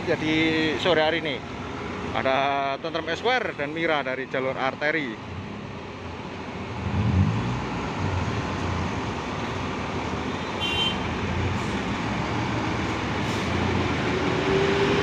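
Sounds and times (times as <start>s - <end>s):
diesel bus engine: 0.0s - 15.0s
heavy traffic noise: 0.0s - 15.0s.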